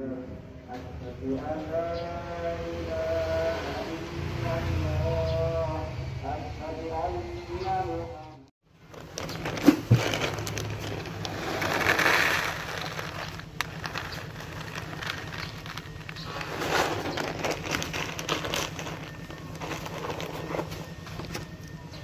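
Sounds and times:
kibble pouring into plastic tray: 0:09.0 - 0:20.7.

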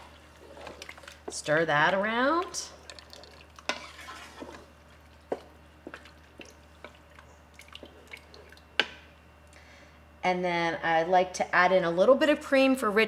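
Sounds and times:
sauce stirring liquid sounds: 0:00.0 - 0:08.9.

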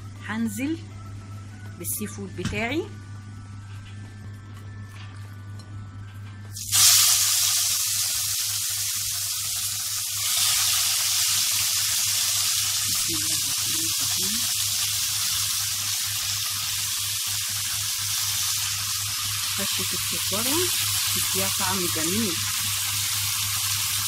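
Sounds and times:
steady low hum: 0:00.0 - 0:16.5
seafood sizzling in a frying pan: 0:06.5 - 0:24.0.

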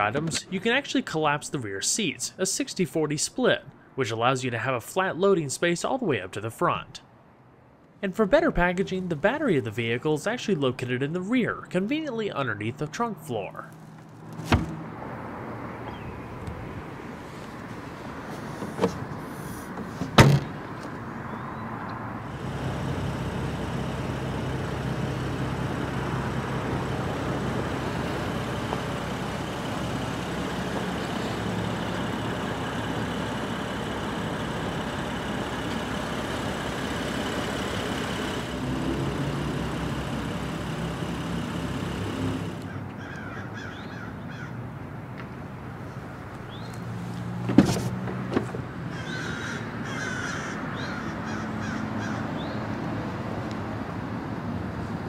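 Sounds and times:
car trunk lid thumping shut: 0:14.4 - 0:14.8, 0:19.8 - 0:20.6, 0:47.5 - 0:48.6
car door latch click: 0:20.0 - 0:20.6
steady rumble: 0:22.2 - 0:42.7
crows cawing: 0:42.7 - 0:44.6, 0:48.9 - 0:52.4.

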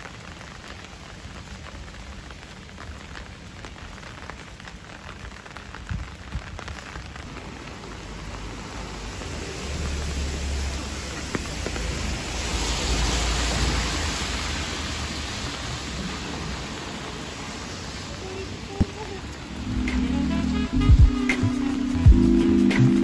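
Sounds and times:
steady rain on a street: 0:00.0 - 0:23.0
truck driving past on wet road: 0:07.3 - 0:18.2.

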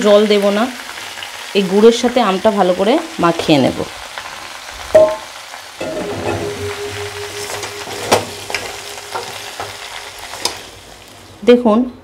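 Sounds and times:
food sizzling in hot oil: 0:00.0 - 0:11.8.

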